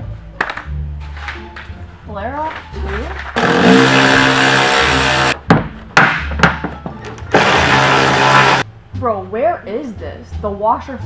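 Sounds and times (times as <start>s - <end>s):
cordless power tool running: 3.4s - 5.4s, 7.3s - 8.6s.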